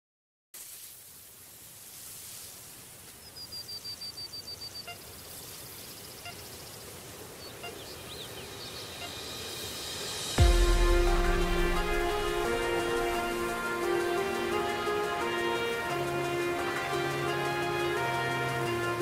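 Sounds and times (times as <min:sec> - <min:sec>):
steady outdoor hiss: 0:00.6 - 0:19.0
bird chirps: 0:03.2 - 0:09.7
bird trilling: 0:07.4 - 0:09.2.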